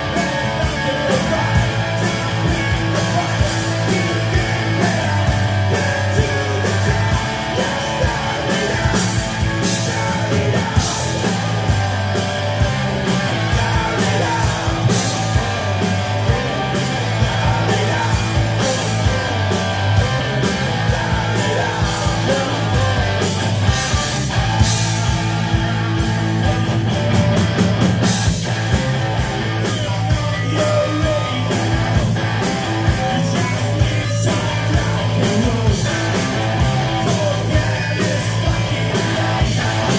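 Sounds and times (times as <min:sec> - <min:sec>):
man singing into a microphone: 0:00.0 - 0:11.7, 0:13.1 - 0:23.4, 0:29.7 - 0:32.0, 0:32.7 - 0:39.9
bass guitar: 0:00.0 - 0:39.9
distorted electric guitars: 0:00.0 - 0:39.9
drums with crashing cymbals: 0:00.0 - 0:39.9.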